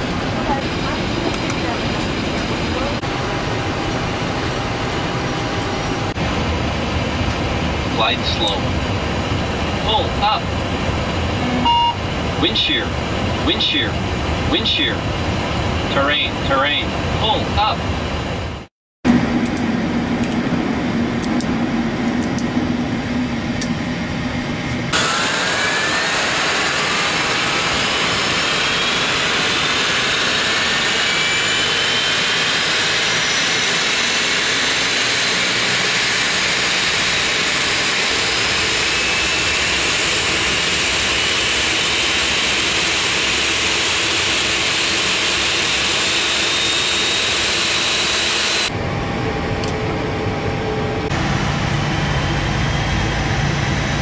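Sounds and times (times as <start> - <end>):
low cockpit hum: 0.0 - 18.2
jet engine spooling up: 18.1 - 54.0.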